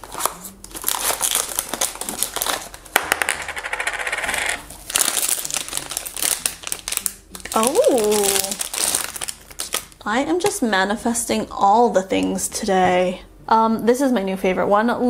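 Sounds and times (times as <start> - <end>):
foil packet crinkling: 0.0 - 2.9, 4.8 - 10.0
sharp foil crackle: 0.0 - 2.9, 4.8 - 10.0.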